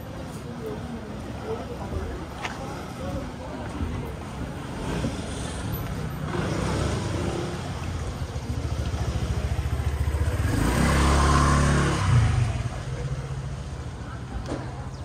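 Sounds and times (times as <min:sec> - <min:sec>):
vehicle engine passing: 0:04.7 - 0:13.6.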